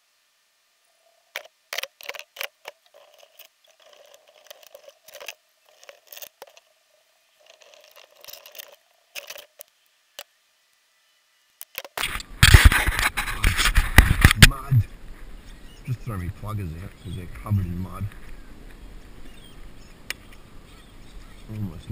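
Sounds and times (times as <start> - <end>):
camera rubbing and knocking: 1.4 - 6.7, 7.4 - 10.3, 11.6 - 15.8
fishing gear clicking and knocking: 1.4 - 6.7, 7.4 - 9.7, 11.6 - 12.7
soft rustling: 1.4 - 6.8, 7.4 - 10.3.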